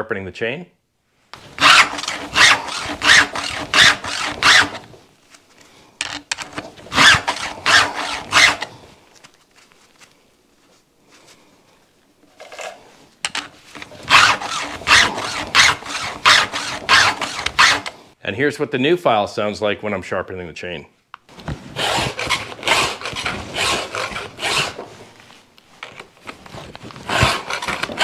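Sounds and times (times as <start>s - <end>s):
files rasping on chainsaw chain: 1.6s - 4.8s, 6.9s - 8.7s, 14.0s - 18.0s, 21.8s - 24.8s, 27.1s - 28.0s.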